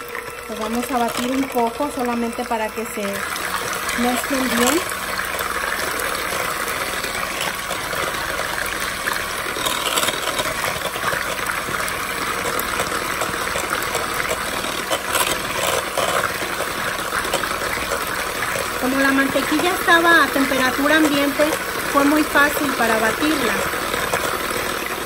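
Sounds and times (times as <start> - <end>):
electric hand mixer running: 0.0 - 25.0.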